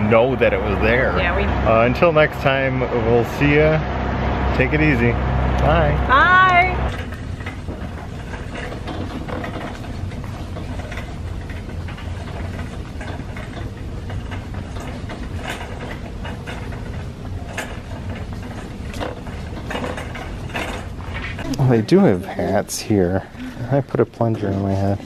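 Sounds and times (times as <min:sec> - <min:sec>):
cart wheels rumbling: 0:00.0 - 0:25.0
wire basket clattering: 0:06.9 - 0:22.2.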